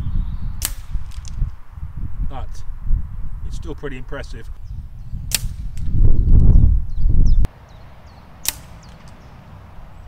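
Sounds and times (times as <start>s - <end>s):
air rifle shots: 0.6s - 1.4s, 5.3s - 5.8s, 8.4s - 9.2s.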